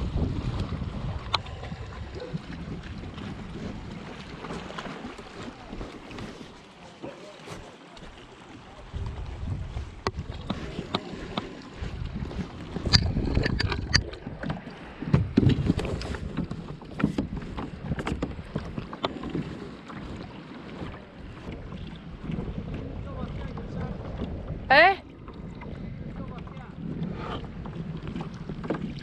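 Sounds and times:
wind buffeting microphone: 0.0s - 6.4s, 8.6s - 29.0s
water sloshing against kayak hull: 0.0s - 29.0s
sharp clicks and knocks: 12.8s - 17.3s.

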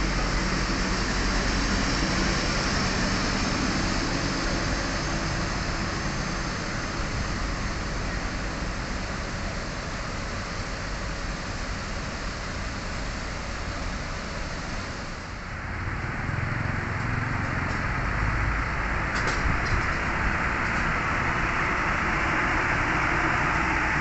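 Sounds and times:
bus diesel engine rumbling: 0.0s - 24.0s
running vehicle engines and traffic: 0.0s - 24.0s.

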